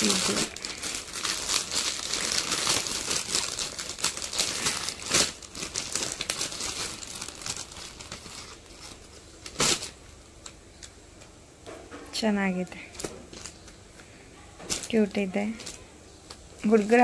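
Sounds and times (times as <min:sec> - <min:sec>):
plastic bag crinkling: 0:00.0 - 0:10.9, 0:14.6 - 0:17.0.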